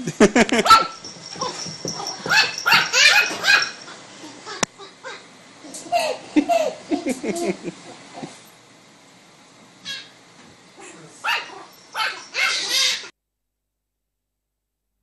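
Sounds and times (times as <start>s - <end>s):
puppy yapping barks: 0.6s - 3.9s, 11.2s - 13.0s.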